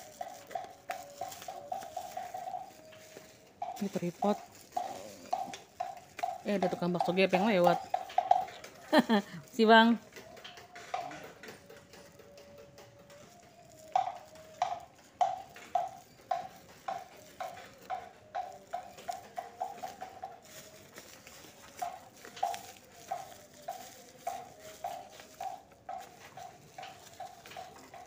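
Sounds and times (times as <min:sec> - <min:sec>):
spoon tapping a bowl: 0:10.2 - 0:28.0.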